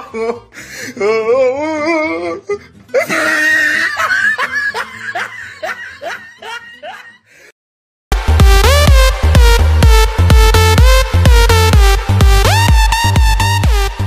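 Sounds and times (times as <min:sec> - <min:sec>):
music: 0:00.0 - 0:07.3, 0:08.1 - 0:14.0
people laughing hard: 0:03.0 - 0:07.3.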